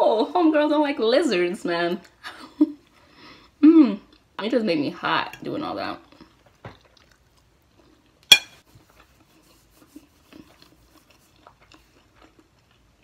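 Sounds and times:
utensil clinking against dish: 0:08.3 - 0:08.6.

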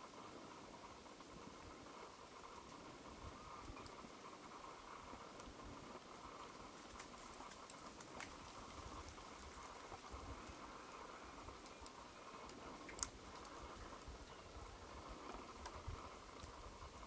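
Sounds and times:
faint outdoor hiss: 0:00.0 - 0:17.0
soft ticks: 0:03.6 - 0:04.2, 0:11.5 - 0:13.6.

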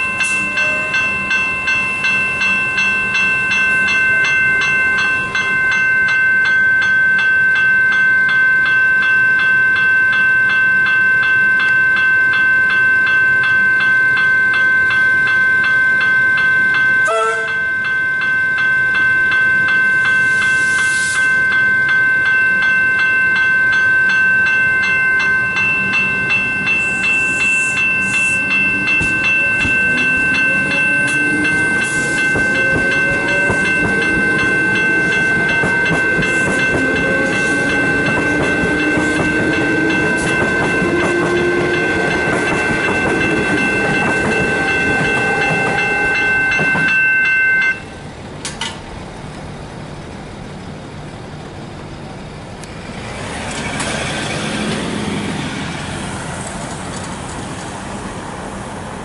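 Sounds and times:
level crossing warning bells: 0:00.0 - 0:52.4
electric train motors whining: 0:25.6 - 0:58.8.

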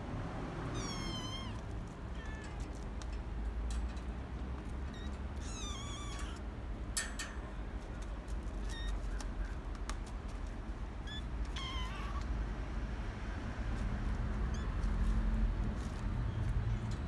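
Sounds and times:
kittens mewing: 0:00.7 - 0:03.0, 0:04.8 - 0:06.5, 0:11.0 - 0:12.3.

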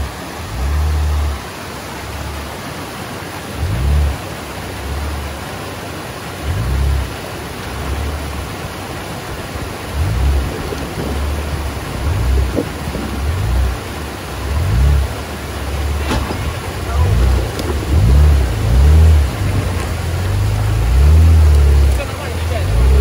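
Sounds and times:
stream running over stones: 0:00.0 - 0:23.0
engine revving: 0:03.5 - 0:05.3, 0:06.4 - 0:08.4, 0:09.8 - 0:23.0.

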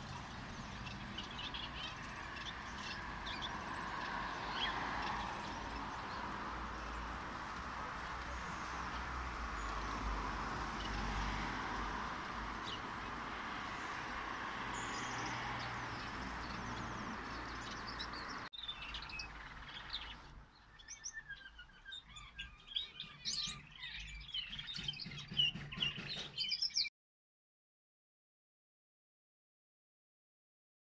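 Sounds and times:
finches chirping: 0:00.0 - 0:07.2, 0:12.5 - 0:26.9.

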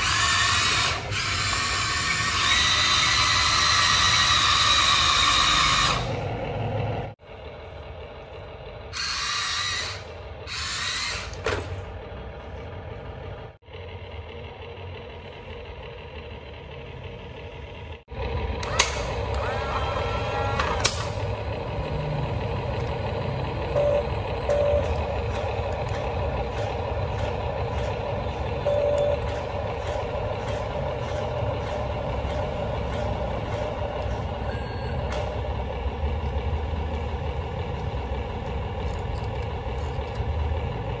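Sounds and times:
simulated truck engine: 0:00.0 - 0:41.0
short beeps: 0:28.6 - 0:29.2, 0:34.5 - 0:35.1.

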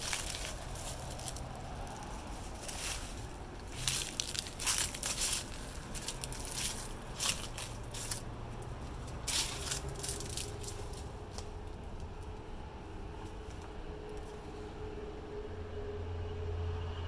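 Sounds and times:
footsteps crunching on dry leaves: 0:00.0 - 0:11.5
low drone: 0:00.0 - 0:17.0.

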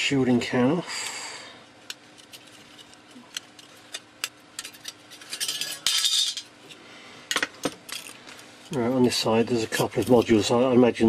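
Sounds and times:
small metal clicks and scraping: 0:01.8 - 0:06.5.

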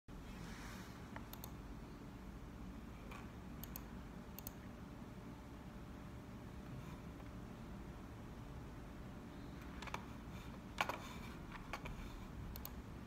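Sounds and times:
low room hum: 0:00.1 - 0:13.0
faint computer clicks: 0:01.1 - 0:01.6, 0:03.0 - 0:04.7, 0:12.5 - 0:12.8.

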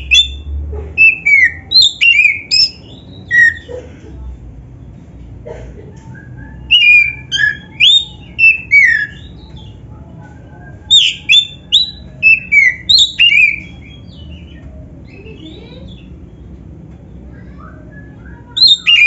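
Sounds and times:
bird singing whistled notes: 0:00.0 - 0:00.4, 0:01.0 - 0:03.6, 0:06.2 - 0:09.8, 0:10.8 - 0:14.6, 0:17.5 - 0:19.0
soft bird twittering: 0:00.0 - 0:03.7, 0:06.2 - 0:09.9, 0:10.5 - 0:19.0.

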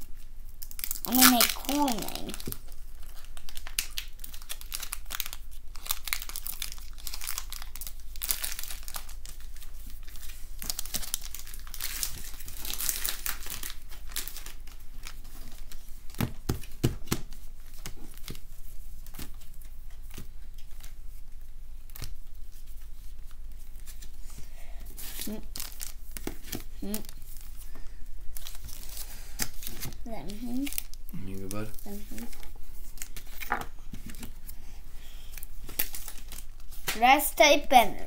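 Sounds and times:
foil wrapper crinkling: 0:00.4 - 0:16.8, 0:25.0 - 0:27.7, 0:28.3 - 0:34.5, 0:35.1 - 0:37.0.

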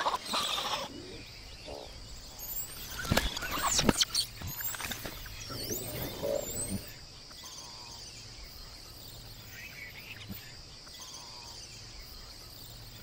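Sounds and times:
insects droning: 0:00.0 - 0:13.0
warbling bird calls: 0:00.0 - 0:13.0.

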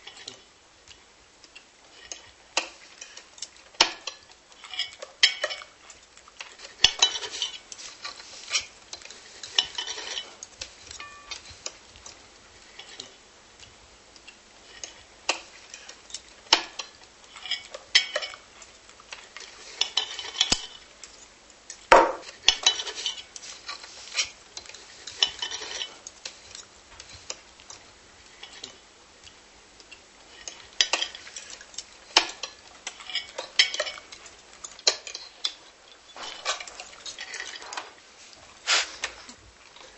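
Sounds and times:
cutlery clinking against plates: 0:03.8 - 0:05.8, 0:06.5 - 0:11.8, 0:12.7 - 0:13.2, 0:14.7 - 0:18.5, 0:19.4 - 0:20.8, 0:21.9 - 0:27.4, 0:30.3 - 0:37.9.

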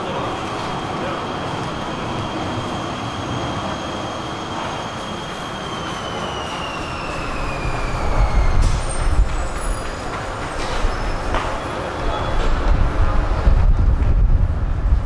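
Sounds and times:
wheels rumbling: 0:00.0 - 0:15.0
train motor whine: 0:03.6 - 0:11.6
brief high squeaks: 0:05.8 - 0:11.6.

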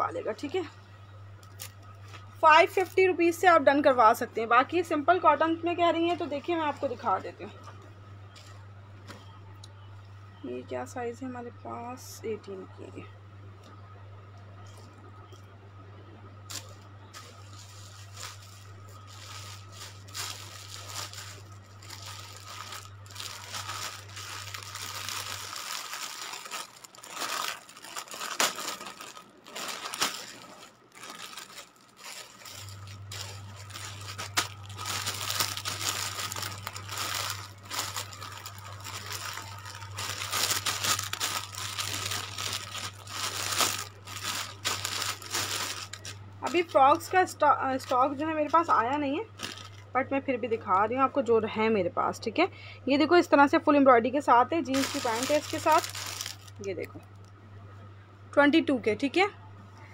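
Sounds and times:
steady low hum: 0:00.0 - 0:59.9
clothes and packaging rustling: 0:04.7 - 0:09.4, 0:16.4 - 0:50.0, 0:54.6 - 0:57.0.

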